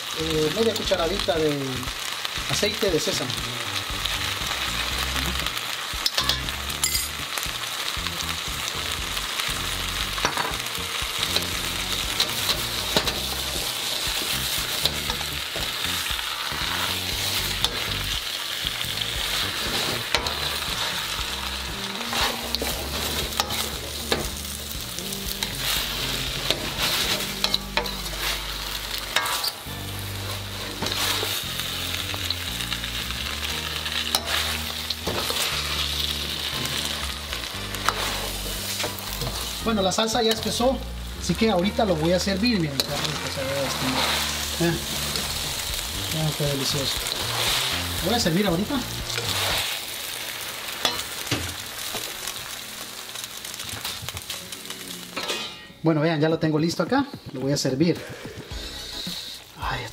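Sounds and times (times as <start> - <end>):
food sizzling in a wok: 0.0 - 56.2, 57.2 - 59.9
ladle clinking and scraping wok: 6.0 - 7.2, 12.2 - 15.8, 22.1 - 24.4, 26.4 - 28.4, 29.0 - 29.7, 34.1 - 35.6, 50.7 - 51.5, 55.1 - 55.8.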